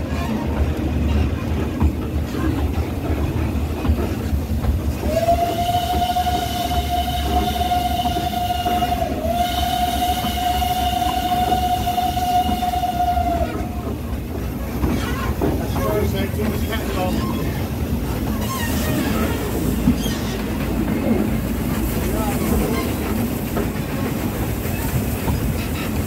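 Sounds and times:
coaches rumbling on track: 0.0 - 26.0
steam locomotive whistle blast: 5.1 - 13.8.

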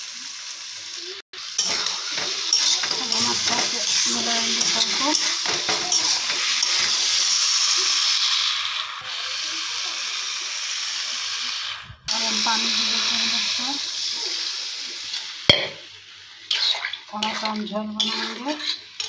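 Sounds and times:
frying oil sizzling: 0.0 - 19.0
spatula scraping and knocking pan: 1.6 - 7.1, 16.5 - 19.0.

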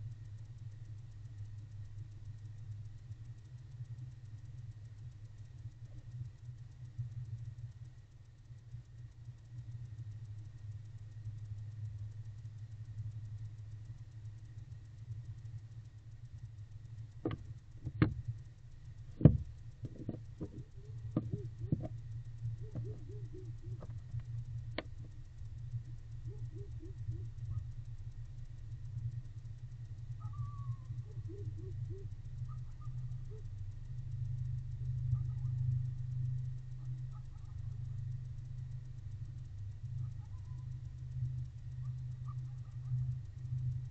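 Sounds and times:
low hum: 0.0 - 43.9
knocks in wooden nest box: 17.3 - 18.2, 19.2 - 20.6.

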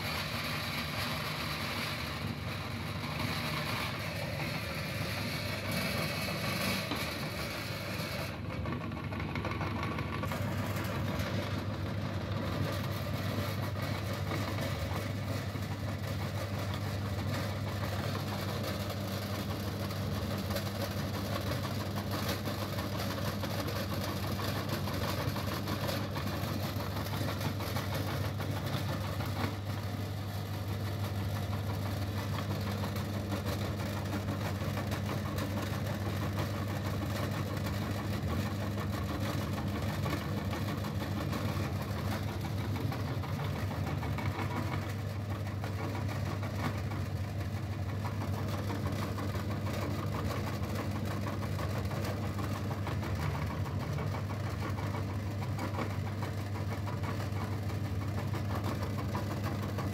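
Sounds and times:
meat grinder humming: 0.0 - 59.9.

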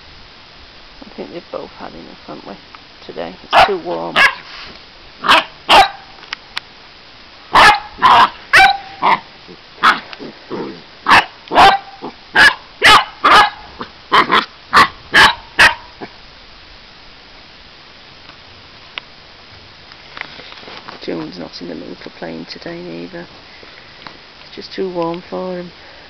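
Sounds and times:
dogs barking and yapping: 3.5 - 4.5, 5.2 - 6.2, 7.5 - 16.2.

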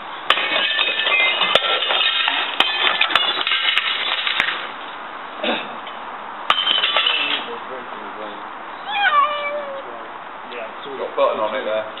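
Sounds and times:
glass shattering and tinkling: 0.3 - 4.4, 6.5 - 7.5.

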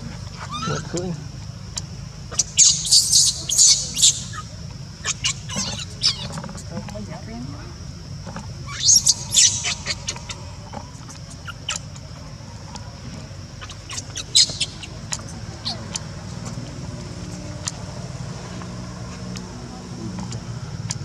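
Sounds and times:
steady high hiss: 0.0 - 20.8
low hum: 0.0 - 21.0
infant monkey squeaking: 0.2 - 1.1, 1.8 - 6.7, 8.6 - 12.0, 13.6 - 16.2.

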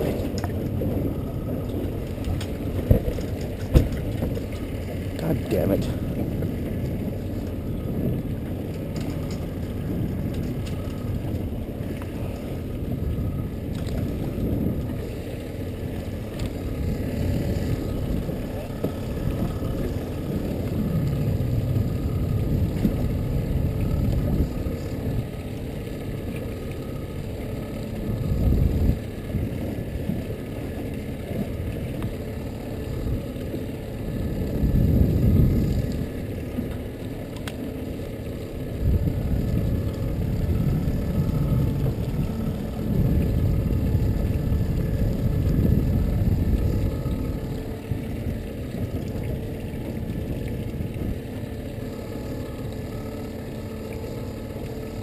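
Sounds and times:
wind buffeting microphone: 0.0 - 25.9, 27.8 - 30.5, 31.1 - 36.5, 38.5 - 53.8
boat motor running: 0.0 - 55.0.

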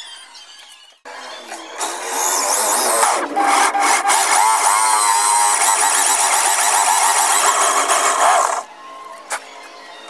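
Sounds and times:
electric drill boring into wood: 1.8 - 8.7.

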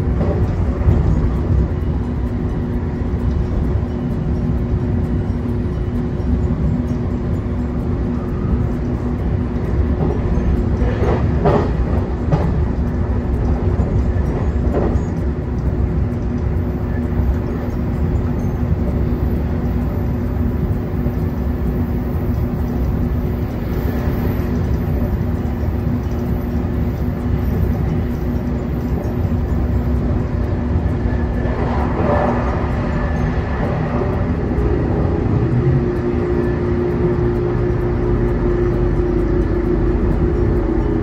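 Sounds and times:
low hum: 0.0 - 41.0
train wheels rumbling on rails: 0.0 - 41.0
track knocks: 9.9 - 15.6.

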